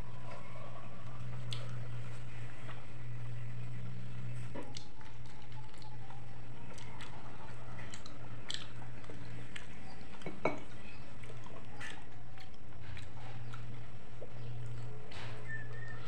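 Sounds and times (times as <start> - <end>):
steady low hum: 0.0 - 16.0
wet chewing and lip smacks: 4.6 - 10.2.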